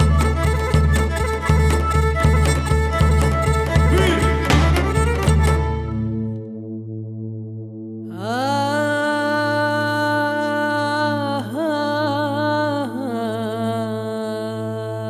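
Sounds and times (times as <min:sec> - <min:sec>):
wordless sung note: 0:03.7 - 0:05.9.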